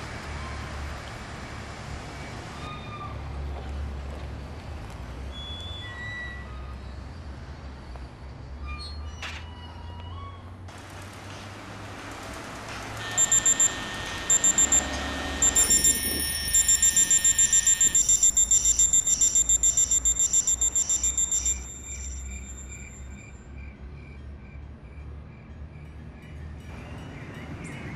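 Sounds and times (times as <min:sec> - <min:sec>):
alarm clock beeping: 0:13.0 - 0:23.3.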